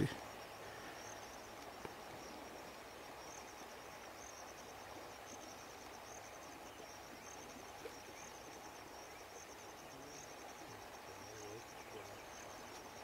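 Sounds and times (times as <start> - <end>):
insects chirping in trills: 0.0 - 13.0
low steady hiss: 0.0 - 13.0.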